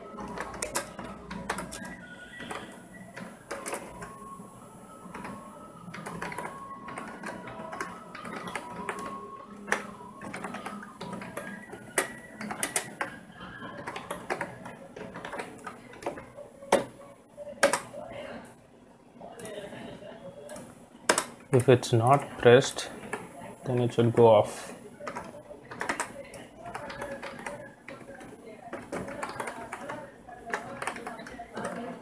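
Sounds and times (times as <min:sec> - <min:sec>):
keyboard keys clicking: 0:00.0 - 0:18.0, 0:25.0 - 0:32.0.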